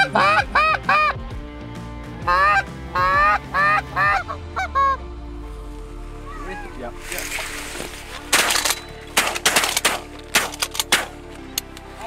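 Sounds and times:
goose call honks: 0:00.0 - 0:01.2, 0:02.2 - 0:05.0.

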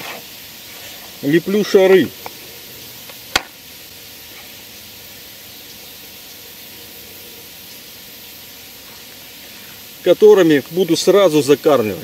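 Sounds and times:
faint steady hiss: 0:00.0 - 0:12.0
sharp click: 0:03.1 - 0:03.6.

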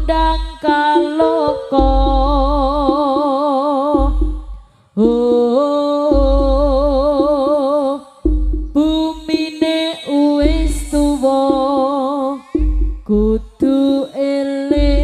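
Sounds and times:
deep low beats: 0:00.0 - 0:03.3, 0:03.9 - 0:05.4, 0:06.1 - 0:09.4, 0:10.4 - 0:11.9, 0:12.5 - 0:13.7, 0:14.8 - 0:15.0
wavering lead melody: 0:00.0 - 0:05.2
quick drum strokes: 0:03.9 - 0:04.7, 0:08.2 - 0:09.4, 0:12.5 - 0:13.7.

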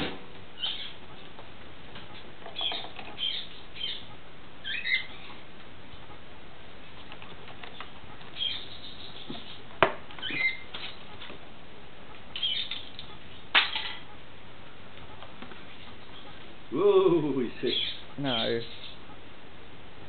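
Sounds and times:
bird squeaking: 0:00.6 - 0:01.0, 0:02.6 - 0:05.2, 0:08.4 - 0:09.6, 0:10.2 - 0:11.0, 0:12.4 - 0:12.9, 0:17.6 - 0:19.0.

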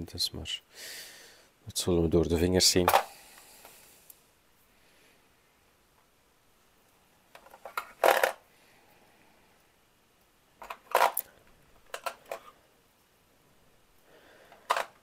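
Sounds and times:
wooden tokens clacking: 0:07.4 - 0:08.4, 0:10.6 - 0:12.5, 0:14.5 - 0:15.0.

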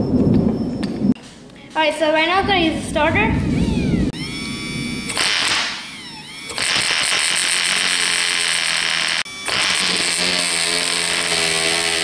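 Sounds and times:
electric starter spinning engine: 0:03.4 - 0:12.0.

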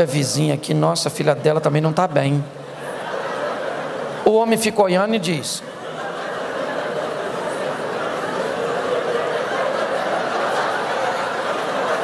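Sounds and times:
audience laughing: 0:02.5 - 0:12.0.

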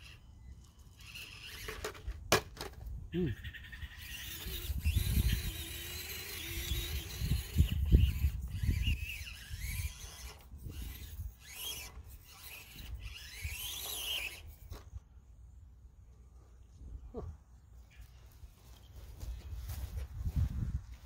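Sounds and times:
small electric motor whine: 0:00.0 - 0:16.8
tires scraping over rock: 0:03.9 - 0:14.9.

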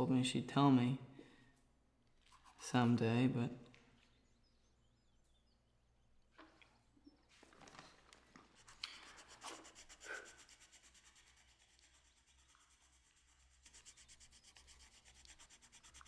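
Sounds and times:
faint rubbing and scratching: 0:02.2 - 0:03.0, 0:07.1 - 0:16.0.

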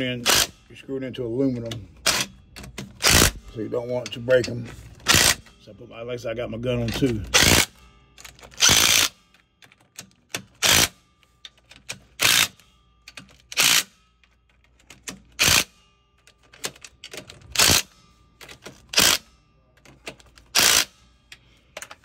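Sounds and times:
impact driver hammering: 0:02.0 - 0:03.4, 0:05.1 - 0:05.4, 0:07.3 - 0:07.7, 0:08.6 - 0:09.1, 0:20.5 - 0:20.9.

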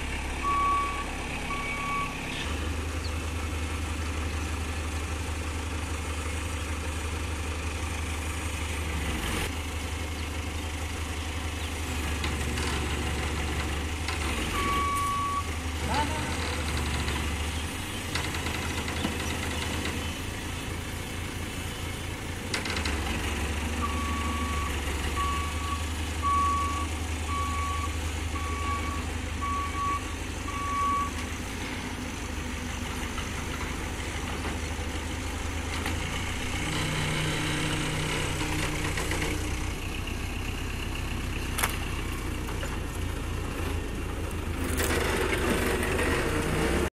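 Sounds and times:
diesel engine running: 0:00.0 - 0:46.9
reversing alarm beeps: 0:00.4 - 0:02.3, 0:14.6 - 0:15.5, 0:23.8 - 0:31.2.

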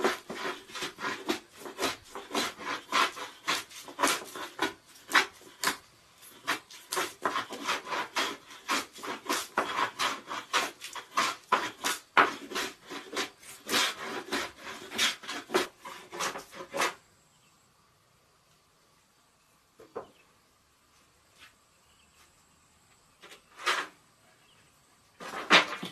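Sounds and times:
hand plane shaving wood: 0:00.0 - 0:17.0.

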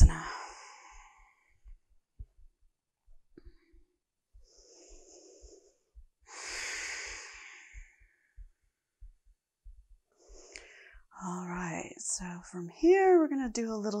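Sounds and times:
woman breathing: 0:00.0 - 0:01.8, 0:03.4 - 0:11.2.

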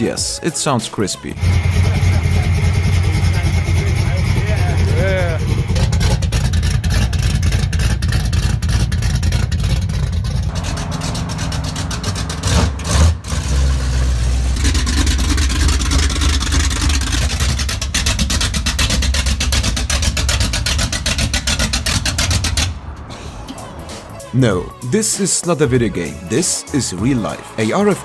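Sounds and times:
car engine idling and revving: 0:01.4 - 0:24.9.

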